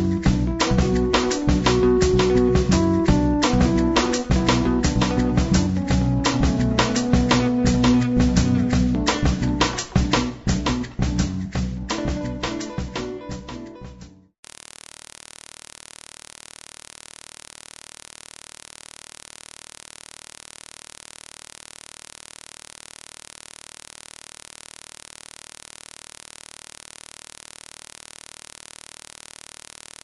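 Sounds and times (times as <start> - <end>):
static hiss: 3.4 - 5.4, 14.4 - 30.0.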